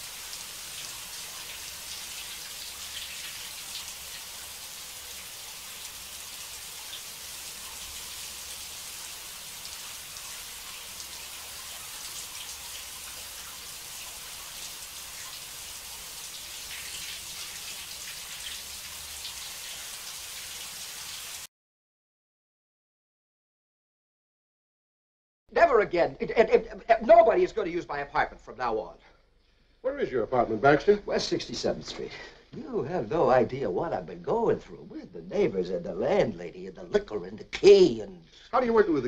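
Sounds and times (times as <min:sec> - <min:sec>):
shower water spraying: 0:00.0 - 0:21.5.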